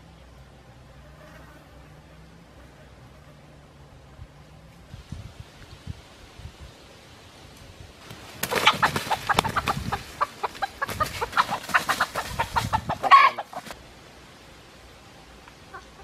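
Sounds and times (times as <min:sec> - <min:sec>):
rooster clucking: 0:08.4 - 0:13.8, 0:15.7 - 0:16.0
rooster squawk: 0:08.5 - 0:13.6.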